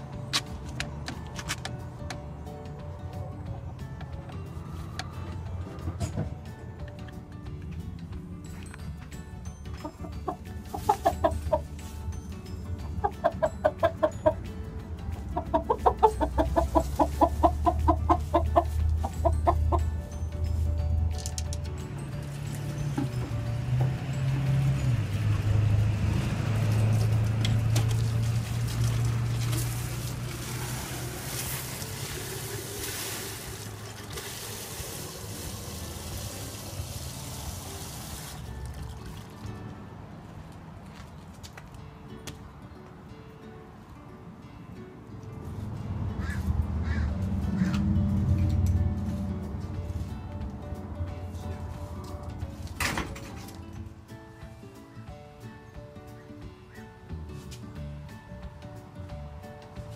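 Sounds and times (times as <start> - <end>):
faint music: 0.0 - 59.9
hens clucking: 9.8 - 11.7, 12.9 - 14.4, 15.2 - 19.9
water pouring into plastic jug: 28.0 - 39.5.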